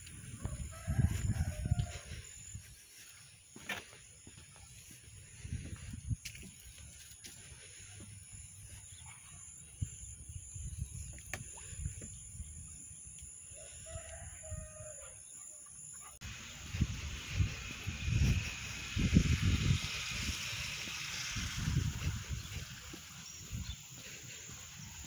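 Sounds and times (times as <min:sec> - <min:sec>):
wind rumble on microphone: 0:00.0 - 0:03.0, 0:04.8 - 0:07.1, 0:09.6 - 0:13.0, 0:16.3 - 0:25.0
rooster crowing: 0:00.4 - 0:02.2, 0:13.6 - 0:15.2.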